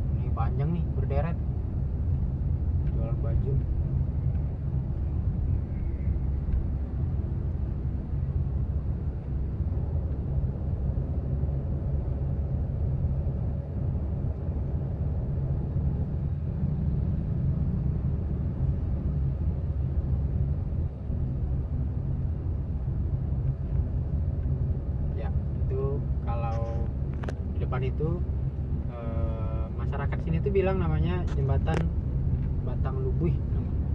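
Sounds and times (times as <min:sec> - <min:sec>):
car engine and tyre rumble: 0:00.0 - 0:33.9.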